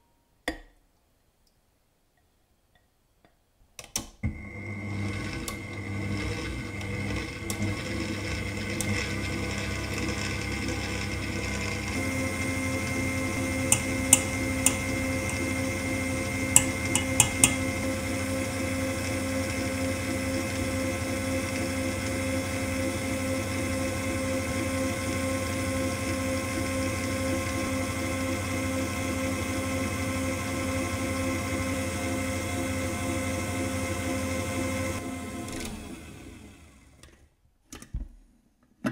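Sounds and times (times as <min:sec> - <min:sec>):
stand mixer motor running: 0:04.3 - 0:37.0
whisk beating in metal bowl: 0:05.9 - 0:21.8.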